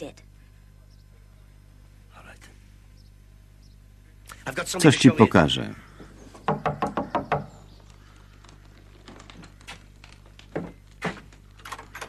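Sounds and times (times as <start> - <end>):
knocks and taps: 6.4 - 9.6.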